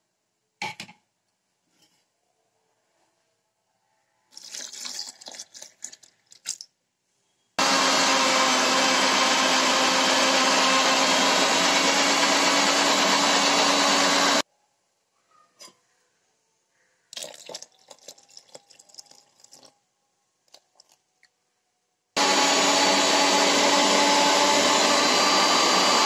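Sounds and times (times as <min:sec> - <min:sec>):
mixer grinder whirring: 0:07.6 - 0:14.4, 0:22.2 - 0:26.0.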